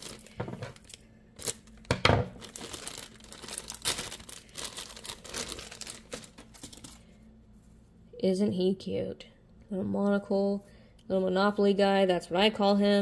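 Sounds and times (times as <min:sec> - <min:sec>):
plastic bag crinkling and tearing: 0:00.0 - 0:07.0.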